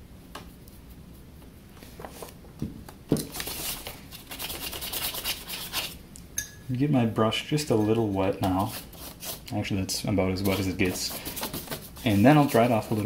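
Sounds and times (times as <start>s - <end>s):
paintbrush scratching on wood: 4.3s - 6.0s, 10.4s - 13.0s.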